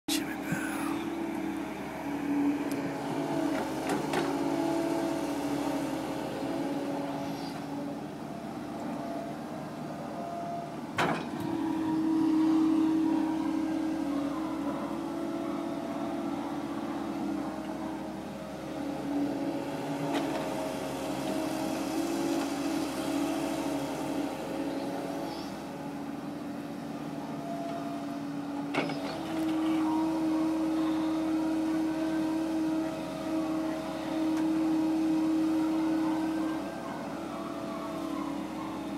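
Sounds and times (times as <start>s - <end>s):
excavator diesel engine running: 0.1s - 38.9s.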